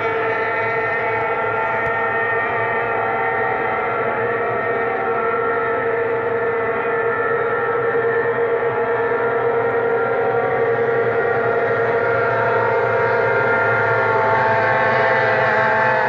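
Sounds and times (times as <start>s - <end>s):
racing boat engines droning: 0.0s - 16.0s.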